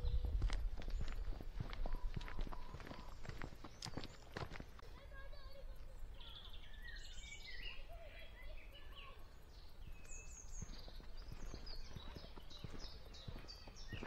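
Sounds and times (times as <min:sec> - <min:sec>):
faint footsteps: 0:00.0 - 0:06.0, 0:09.8 - 0:14.0
songbirds chirping and trilling: 0:00.0 - 0:14.0.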